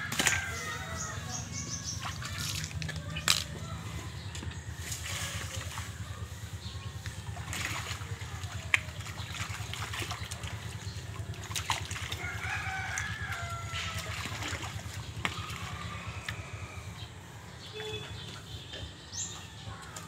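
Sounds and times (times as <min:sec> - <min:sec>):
rooster crowing: 0:00.0 - 0:01.5, 0:12.2 - 0:14.2
water sloshing and splashing: 0:00.0 - 0:20.0.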